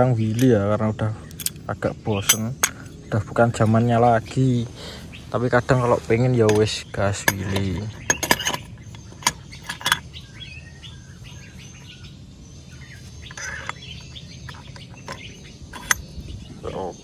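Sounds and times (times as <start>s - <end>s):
small birds chirping: 0.0s - 17.0s
metallic clinks: 0.2s - 3.0s, 6.4s - 10.4s, 13.2s - 16.4s.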